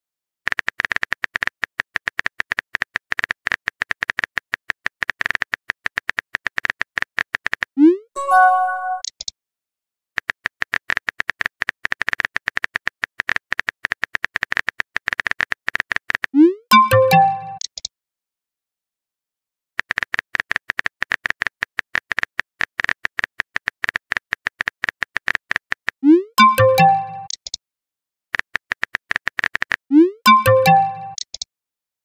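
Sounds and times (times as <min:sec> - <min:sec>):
keyboard typing clicks: 0:00.5 - 0:09.3, 0:10.2 - 0:17.9, 0:19.8 - 0:27.6, 0:28.4 - 0:31.5
message chime: 0:08.2 - 0:09.1, 0:16.7 - 0:17.6, 0:26.1 - 0:27.3, 0:30.3 - 0:31.2.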